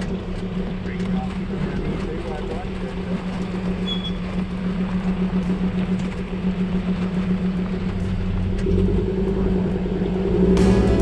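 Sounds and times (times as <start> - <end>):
tyre noise on dirt: 0.0 - 11.0
vehicle engine drone: 0.0 - 11.0.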